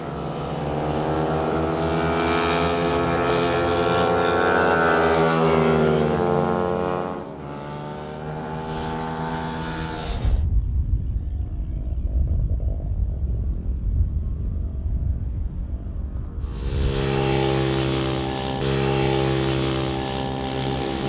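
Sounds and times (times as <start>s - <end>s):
racing motorcycle engine: 0.0s - 12.2s, 16.3s - 21.0s
loud uneven low rumble: 10.0s - 17.8s.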